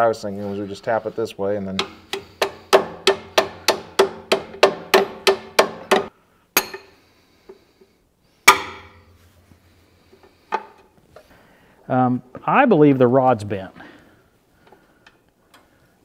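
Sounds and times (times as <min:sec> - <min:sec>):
hammer tapping metal rod: 0:01.8 - 0:06.9.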